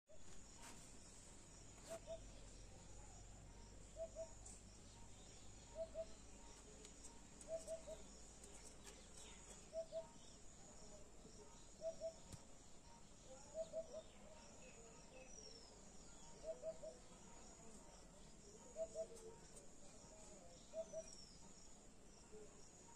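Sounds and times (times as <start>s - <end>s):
bird hooting: 5.7s - 6.2s, 7.4s - 8.0s, 9.7s - 10.1s, 11.8s - 12.3s, 16.4s - 17.0s.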